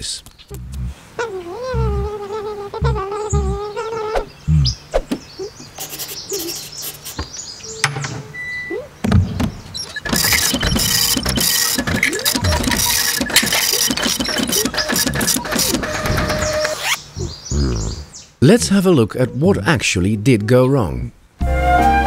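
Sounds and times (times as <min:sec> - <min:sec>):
rapid beeping: 0:09.7 - 0:17.0
machine whirring: 0:09.8 - 0:17.0.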